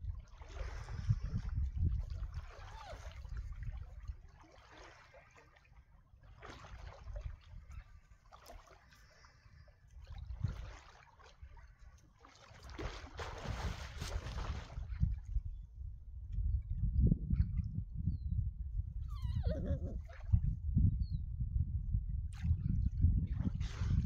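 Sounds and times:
sea water sloshing and splashing: 0.0s - 15.6s, 19.4s - 20.6s, 22.3s - 24.0s
low rumble of water on microphone: 0.0s - 24.0s.

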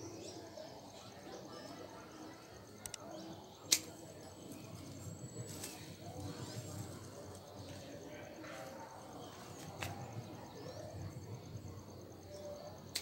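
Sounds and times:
pruning shears snipping branches: 3.7s - 4.0s.

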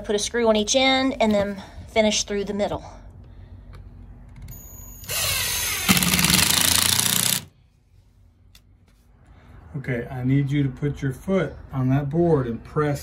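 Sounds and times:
impact driver motor spinning: 4.5s - 7.5s
impact driver hammering: 5.2s - 7.5s.

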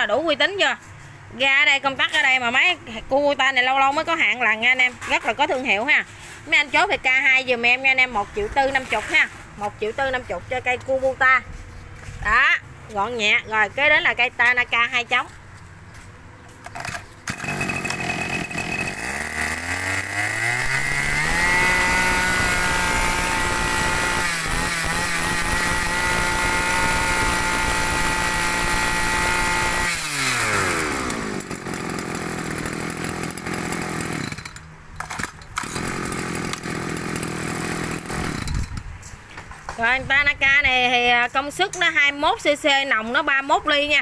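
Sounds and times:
brush-cutter engine revving: 16.6s - 38.8s.

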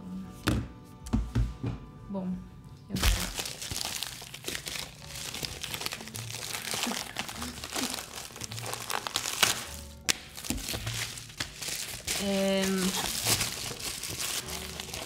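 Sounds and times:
packaging crinkling: 3.0s - 15.0s.

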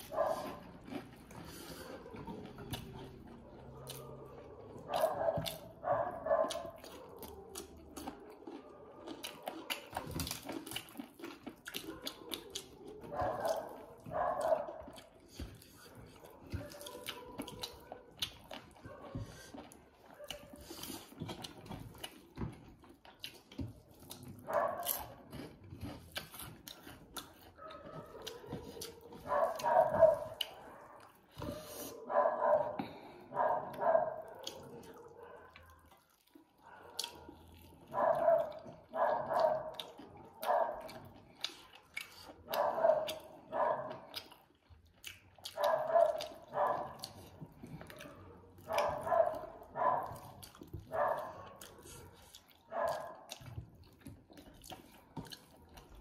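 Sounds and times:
dog barking: 0.0s - 1.0s, 3.4s - 10.6s, 11.7s - 15.1s, 15.8s - 20.6s, 24.4s - 25.5s, 27.4s - 36.0s, 36.6s - 41.2s, 42.4s - 44.2s, 45.5s - 53.5s
chewing and lip-smacking: 0.0s - 56.0s.

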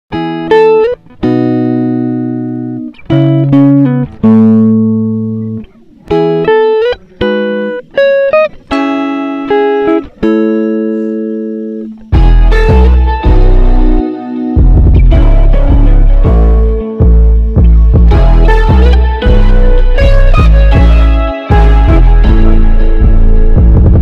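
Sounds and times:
plucked string notes: 0.1s - 24.0s
deep bass: 12.2s - 24.0s.

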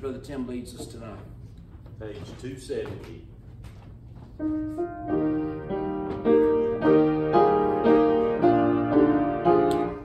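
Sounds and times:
piano playing hymn chords: 4.4s - 10.0s.

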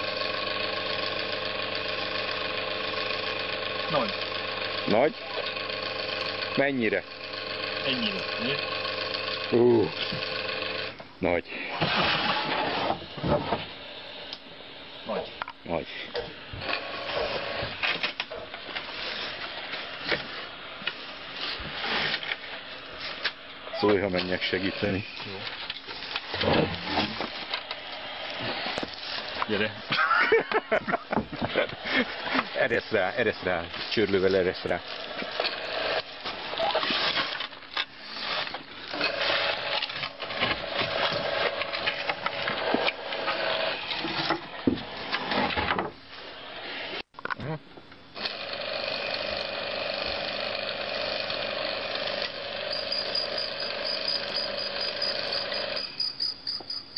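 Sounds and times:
winch motor whine: 0.0s - 11.0s, 16.1s - 20.2s, 23.7s - 25.6s, 31.1s - 36.8s, 38.9s - 45.2s, 48.2s - 56.0s
sack dragged across wooden platform: 11.8s - 13.2s, 18.8s - 23.2s
rustling and scraping: 11.8s - 13.8s, 16.2s - 24.4s, 25.1s - 30.1s, 30.8s - 47.4s.

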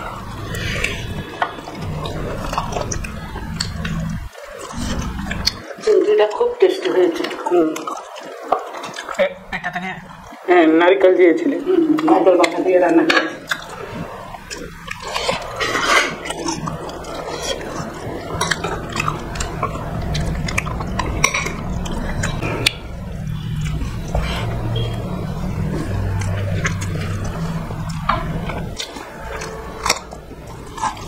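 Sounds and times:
chewing: 0.0s - 10.4s, 11.4s - 31.0s
hands mixing wet rice: 11.4s - 31.0s.

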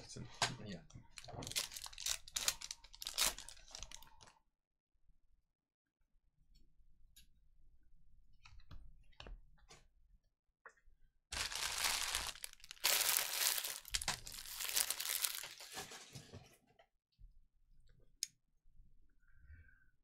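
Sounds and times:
plastic wrapping crinkling and tearing: 1.1s - 4.3s, 11.4s - 16.0s.

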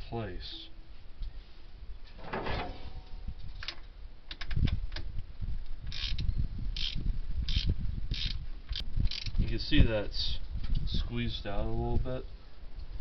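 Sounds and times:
metal housing clicks and knocks: 2.2s - 5.1s
ratchet wrench clicking: 5.9s - 9.4s.

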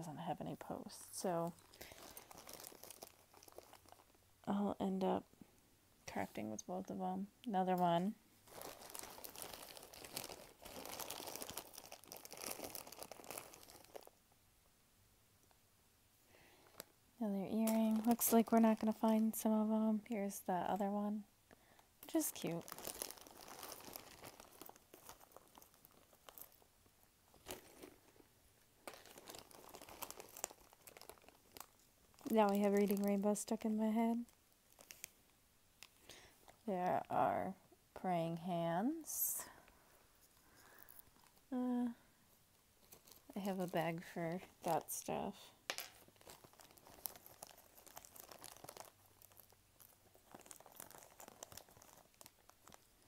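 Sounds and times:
plastic bag crinkling: 0.6s - 4.2s, 8.4s - 14.2s, 16.4s - 19.8s, 22.0s - 36.7s, 39.4s - 42.0s, 42.8s - 53.0s
jewelry clicking and rustling: 1.5s - 4.1s, 42.8s - 43.3s, 45.6s - 53.0s.

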